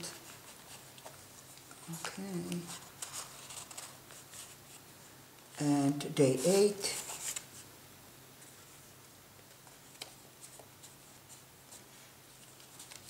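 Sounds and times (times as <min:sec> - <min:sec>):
paper rustling: 0:00.0 - 0:04.9, 0:06.4 - 0:07.7, 0:09.5 - 0:13.0
faint room hiss: 0:00.0 - 0:13.0.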